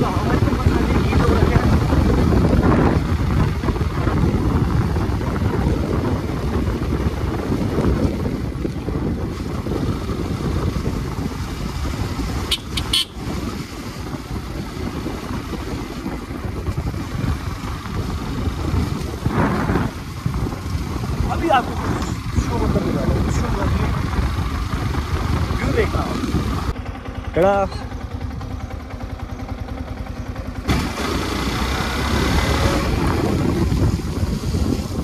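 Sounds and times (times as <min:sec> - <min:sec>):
motorcycle engine rumble: 0:00.0 - 0:35.0
wind over microphone: 0:00.0 - 0:35.0.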